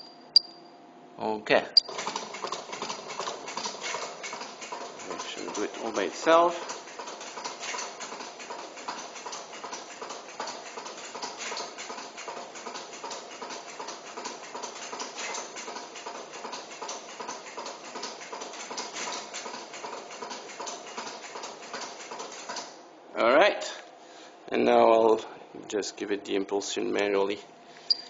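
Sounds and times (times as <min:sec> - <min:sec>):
flip clock flaps clacking: 0:01.8 - 0:22.7.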